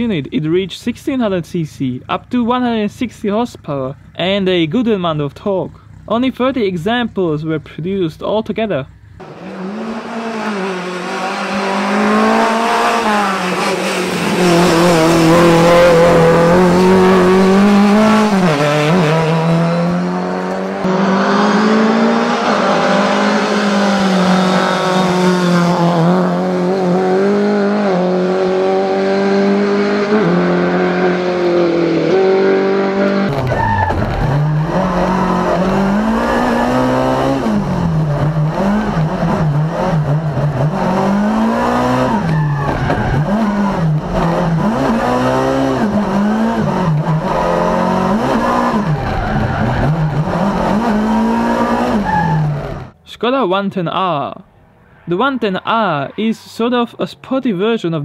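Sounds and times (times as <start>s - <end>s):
rally car engine revving: 9.0s - 53.0s.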